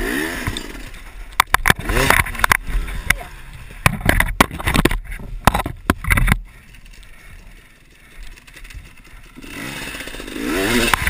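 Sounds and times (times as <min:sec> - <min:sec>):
dirt bike engine revving: 0:00.0 - 0:03.6, 0:06.5 - 0:11.0
sharp clattering knocks: 0:03.8 - 0:06.4.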